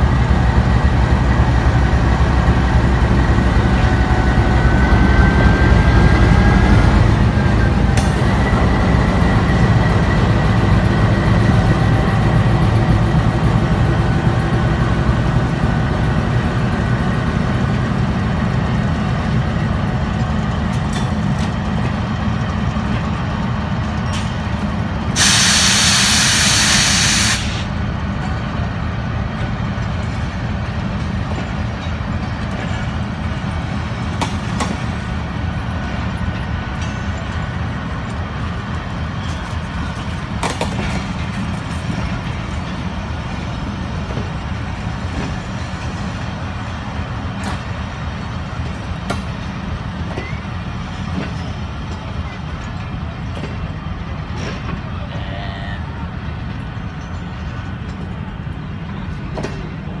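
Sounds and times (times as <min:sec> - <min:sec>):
coaches rolling on rails: 0:00.0 - 1:00.0
locomotive engine drone: 0:00.0 - 1:00.0
air hiss: 0:25.2 - 0:27.7.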